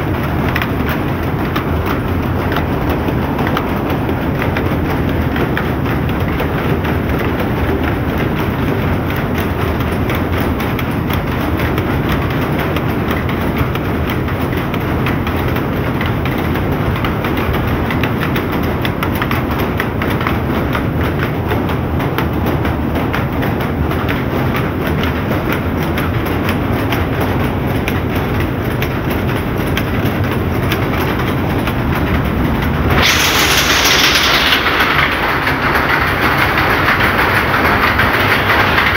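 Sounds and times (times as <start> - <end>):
power looms clattering: 0.0 - 38.9
loud hiss: 32.9 - 38.9.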